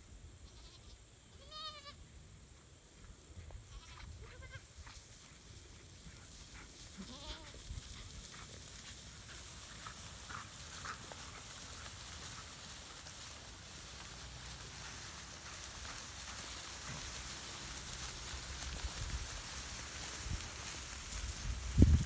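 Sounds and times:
goats bleating: 0:00.5 - 0:02.0, 0:03.7 - 0:04.6, 0:07.0 - 0:07.6
dry grass rustling: 0:03.0 - 0:22.0.

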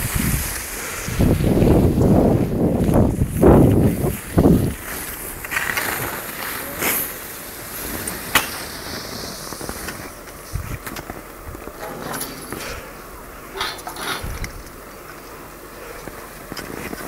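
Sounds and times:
wind buffeting microphone: 0:00.0 - 0:05.5, 0:10.4 - 0:11.8, 0:12.8 - 0:14.9
quiet hiss: 0:00.0 - 0:17.0
skis clicking and scraping on snow: 0:00.0 - 0:17.0.

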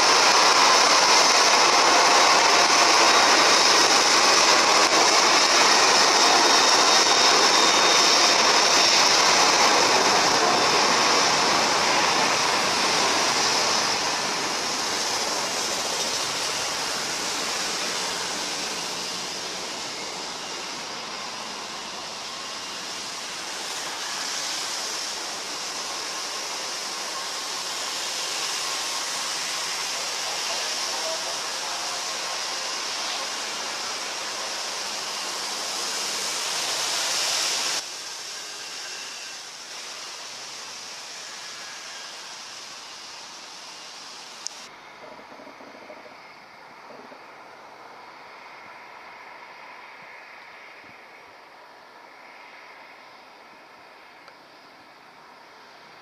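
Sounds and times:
hiss of tyre spray: 0:00.0 - 0:44.8
jet engines running: 0:00.0 - 0:56.0.

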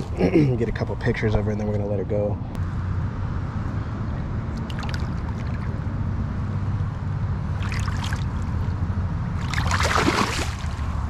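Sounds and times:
lake water sloshing and splashing: 0:04.6 - 0:05.7, 0:07.6 - 0:08.5, 0:09.4 - 0:11.0.

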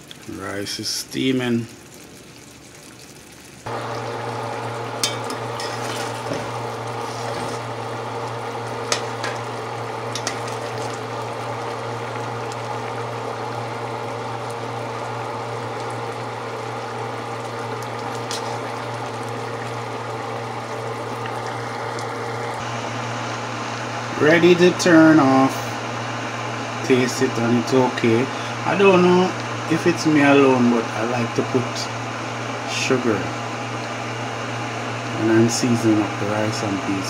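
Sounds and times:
curry simmering in pot: 0:01.7 - 0:22.7
steady hum: 0:03.4 - 0:37.0.

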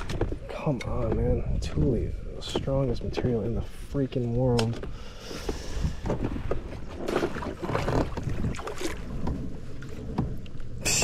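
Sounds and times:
wind buffeting microphone: 0:00.0 - 0:05.0
water sloshing: 0:00.0 - 0:10.8.

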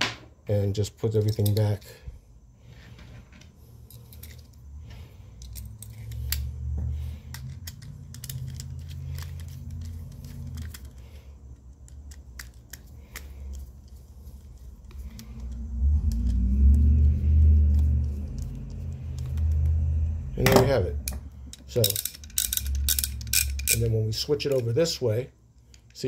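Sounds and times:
small metal clicks and clinks: 0:07.3 - 0:11.0, 0:21.0 - 0:24.7
low rumble: 0:14.8 - 0:23.8.

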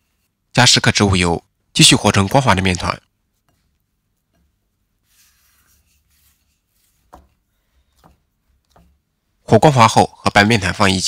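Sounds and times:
hands kneading dough: 0:03.1 - 0:09.9.

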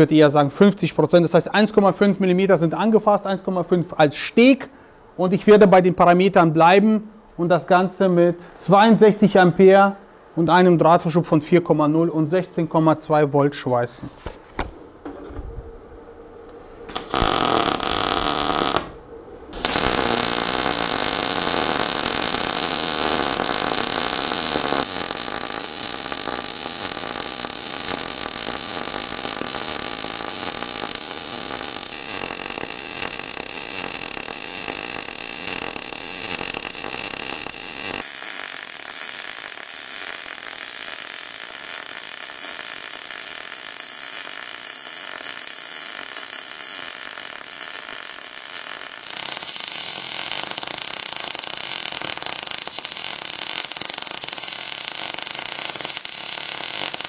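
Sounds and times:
welding arc crackling and hissing: 0:16.9 - 0:57.0.

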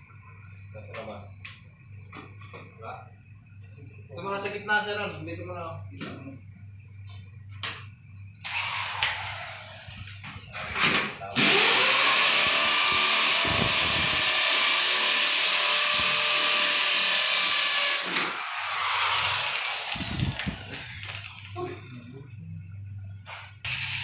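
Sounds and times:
electric drill boring into wall: 0:08.4 - 0:21.6, 0:23.7 - 0:24.0.

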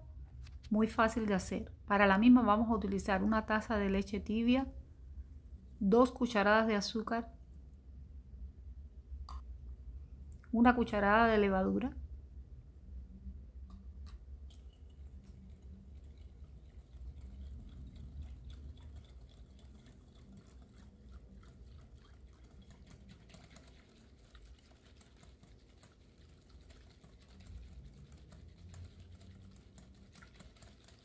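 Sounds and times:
liquid sloshing: 0:14.0 - 0:31.0
whisk clicking on glass bowl: 0:14.5 - 0:31.0.

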